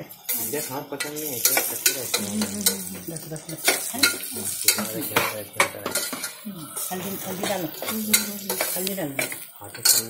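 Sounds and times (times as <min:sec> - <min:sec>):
oil sizzling: 0:00.0 - 0:10.0
spoon scraping a pot: 0:03.6 - 0:10.0.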